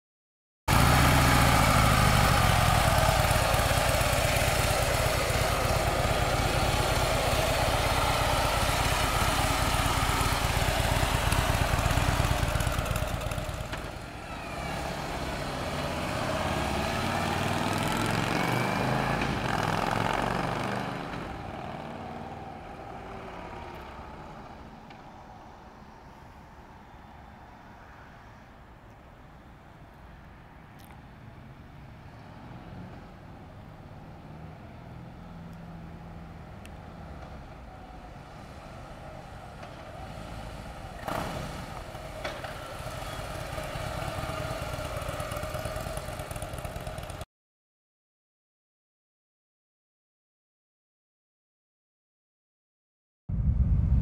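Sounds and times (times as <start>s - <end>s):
motorcycle engine passing by: 0.7s - 24.8s, 32.3s - 47.3s.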